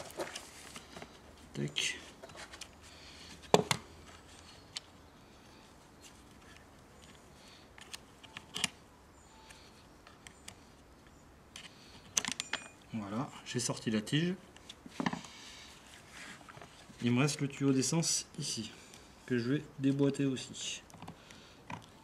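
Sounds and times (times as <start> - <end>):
clicks of plastic and metal parts: 11.5 - 12.8, 20.8 - 22.0.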